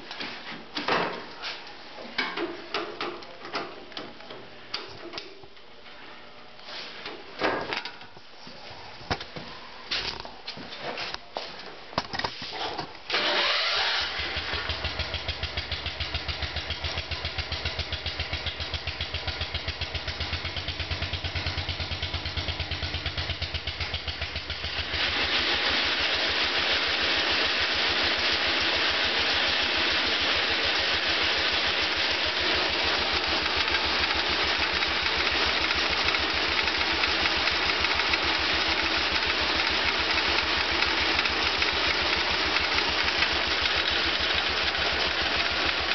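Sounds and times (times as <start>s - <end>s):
tractor engine starting and running: 13.1s - 45.9s.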